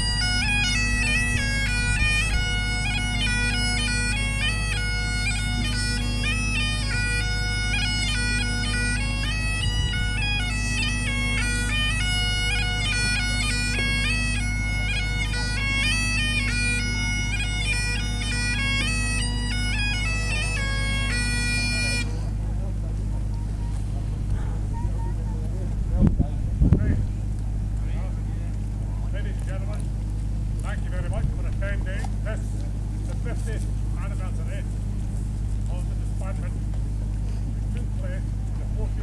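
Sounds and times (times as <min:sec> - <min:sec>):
bagpipe chanter melody: 0:00.0 - 0:25.8, 0:30.6 - 0:39.0
bagpipe drones humming: 0:00.0 - 0:39.0.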